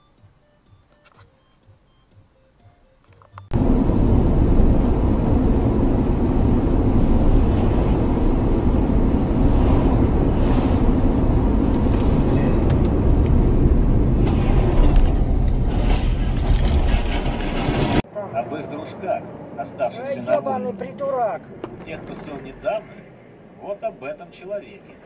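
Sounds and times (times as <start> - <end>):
car cabin road noise: 3.4 - 18.1.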